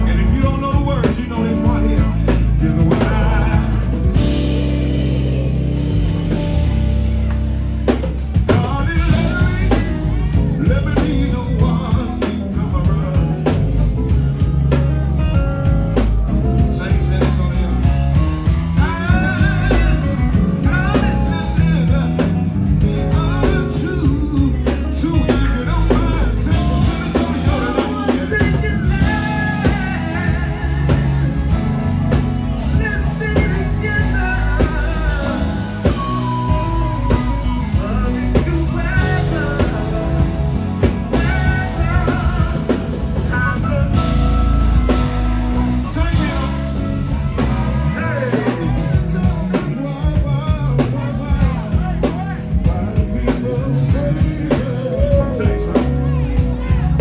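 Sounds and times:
male vocal group singing: 0.0s - 4.6s, 18.8s - 57.0s
drum kit: 0.0s - 57.0s
electric guitar: 0.0s - 57.0s
keyboards: 0.0s - 57.0s.

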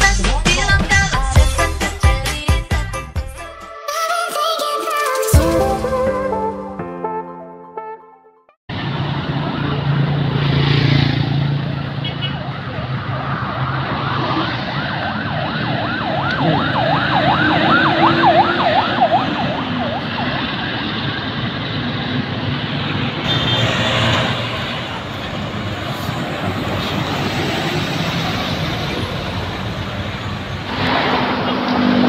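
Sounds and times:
bus engine: 8.7s - 32.0s
road traffic noise: 8.7s - 32.0s
warbling siren horn: 14.0s - 20.7s.

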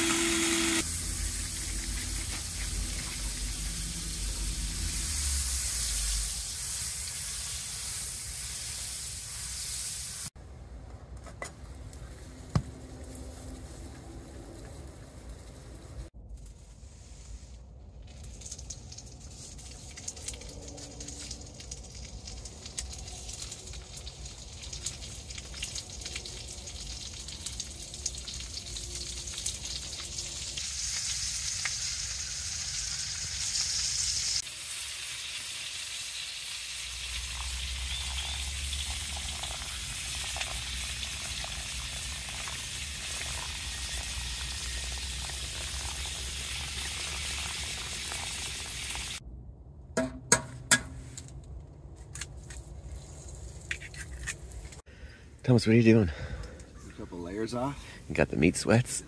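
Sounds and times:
food sizzling in a pan: 0.0s - 10.4s, 22.5s - 49.2s
sharp knocks: 50.0s - 51.0s.

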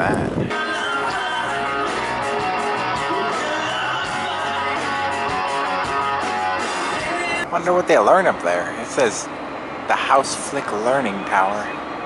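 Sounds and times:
strummed guitar music: 0.5s - 7.5s.

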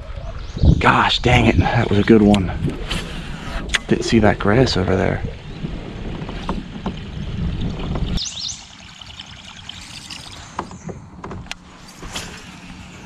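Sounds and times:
low rumble: 0.0s - 8.2s
bird chirping: 8.2s - 8.9s.

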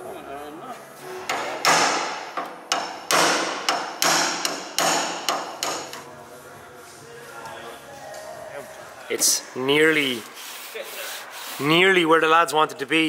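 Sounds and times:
hammer striking steel panel: 1.3s - 6.0s.

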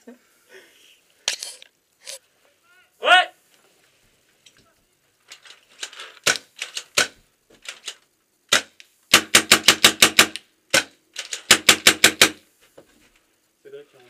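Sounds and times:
paintball marker shots: 6.2s - 7.2s, 8.5s - 12.4s.

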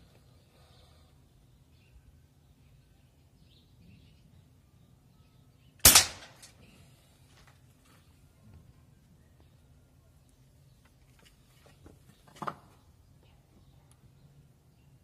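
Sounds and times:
air rifle shot crack: 5.8s - 6.6s.

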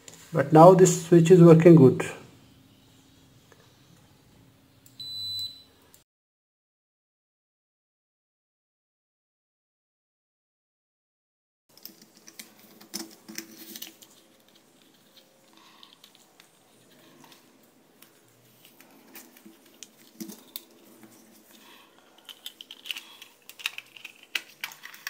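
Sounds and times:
plastic computer mouse clicks and rattles: 11.7s - 16.6s, 18.6s - 25.0s.

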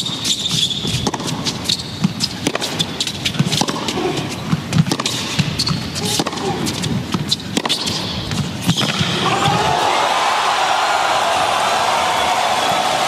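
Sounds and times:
tennis ball bouncing on court: 0.1s - 9.6s
crowd noise: 9.0s - 13.0s.

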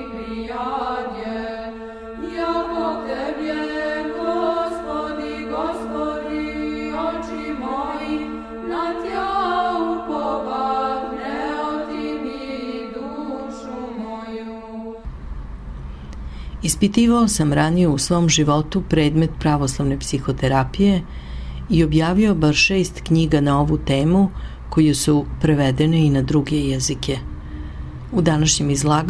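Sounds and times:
voices chanting a gliding melody: 0.0s - 15.1s
held drone note: 0.0s - 16.3s.

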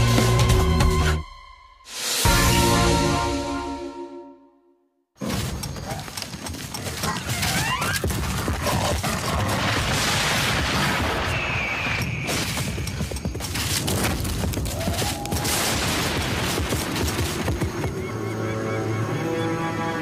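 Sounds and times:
background music: 0.0s - 4.9s, 17.9s - 20.0s.

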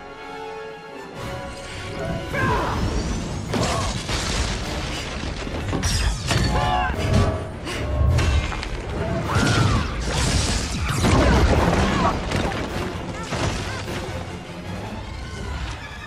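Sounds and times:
dramatic orchestral music: 0.0s - 16.0s
crashes and shattering impacts: 2.9s - 7.3s, 8.2s - 14.1s.

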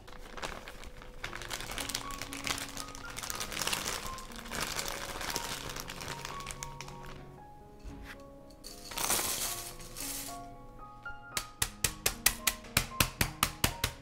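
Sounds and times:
plastic bag crinkling: 0.0s - 7.3s
background music with held notes: 0.0s - 14.0s.

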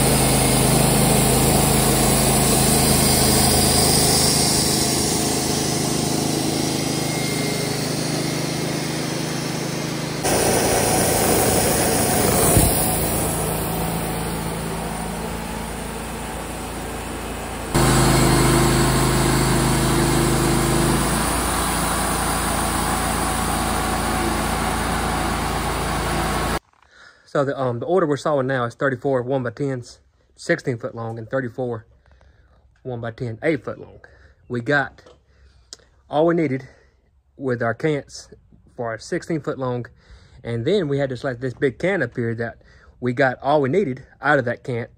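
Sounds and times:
band blade sawing wood: 0.0s - 16.0s, 17.0s - 21.5s
sawmill engine running: 0.0s - 26.6s.

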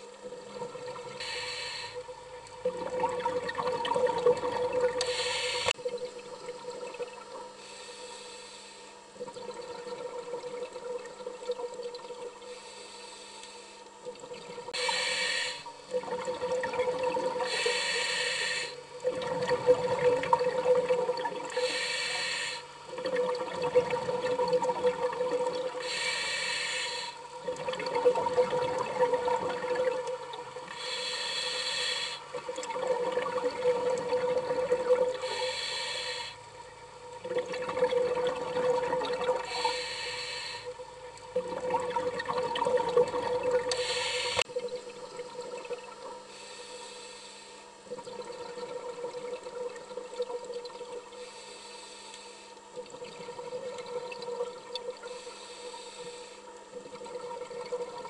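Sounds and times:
hissing and bubbling: 0.0s - 58.0s
diver breathing through regulator: 1.2s - 2.0s, 5.0s - 5.7s, 14.8s - 15.7s, 17.4s - 18.8s, 21.6s - 22.7s, 25.8s - 27.2s, 30.7s - 32.3s, 35.2s - 36.4s, 39.4s - 40.7s, 43.7s - 44.5s, 46.3s - 47.6s, 51.2s - 52.6s, 55.0s - 56.5s.

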